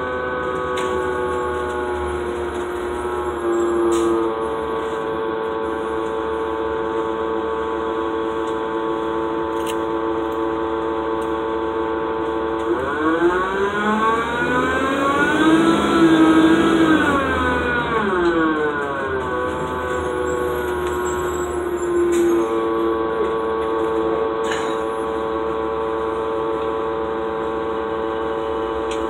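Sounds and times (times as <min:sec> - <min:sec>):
bus diesel engine revving: 0:12.4 - 0:27.2.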